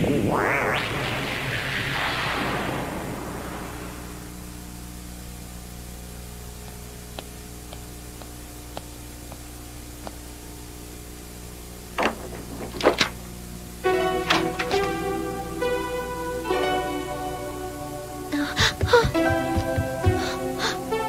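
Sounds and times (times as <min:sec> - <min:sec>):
steady low hum: 0:00.0 - 0:21.0
soft footsteps: 0:06.6 - 0:10.4, 0:18.6 - 0:20.2
door handle rattling: 0:12.0 - 0:13.2
door opening: 0:12.0 - 0:13.2, 0:14.2 - 0:15.0.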